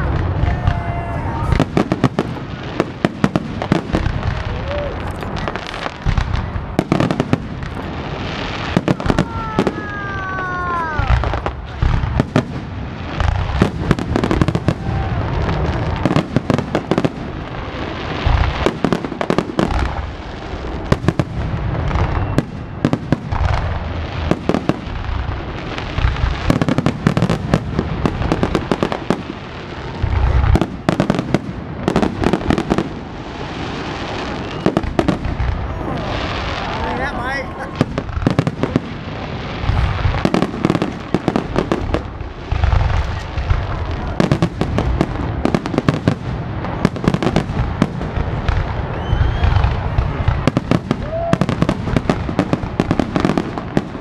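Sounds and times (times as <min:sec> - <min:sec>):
firework crackling: 0:00.0 - 0:54.0
falling firework whistle: 0:08.5 - 0:12.4, 0:21.1 - 0:23.6, 0:33.7 - 0:36.8, 0:48.5 - 0:51.8.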